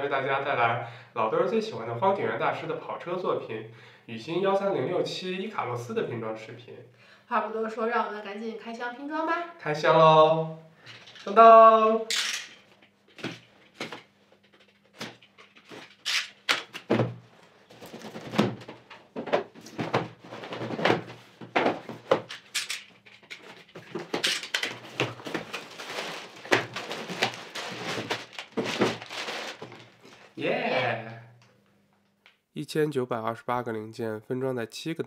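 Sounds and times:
cardboard thunks and knocks: 16.8s - 22.3s
plastic bags crinkling: 22.2s - 30.4s.

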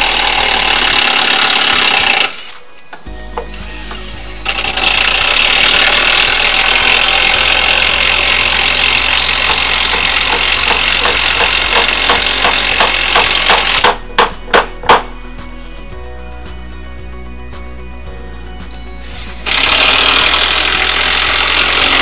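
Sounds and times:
power tool running: 0.0s - 2.6s, 3.4s - 15.0s, 19.0s - 22.0s
sharp knocks: 9.5s - 15.2s.

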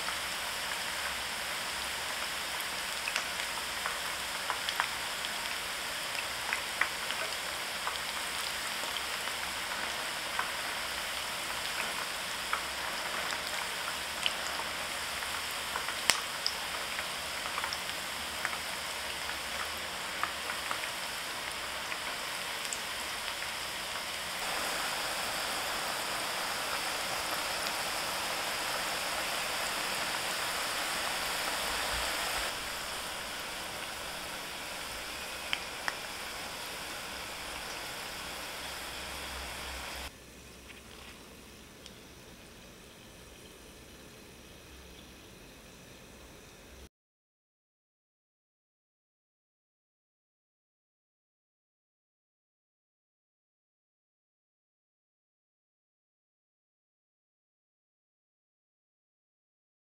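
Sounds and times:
food deep-frying in oil: 0.0s - 46.9s
oil pops and crackles: 3.0s - 8.2s, 15.2s - 20.9s, 25.4s - 38.2s.

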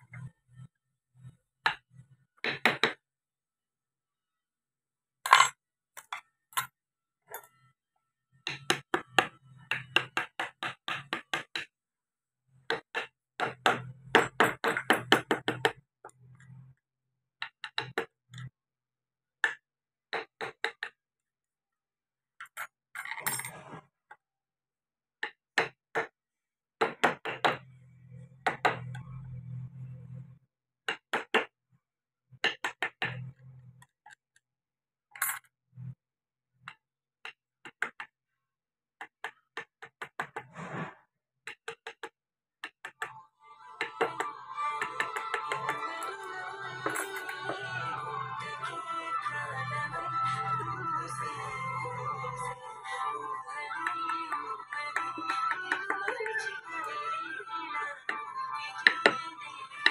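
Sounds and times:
brief scraping: 40.5s - 41.0s.

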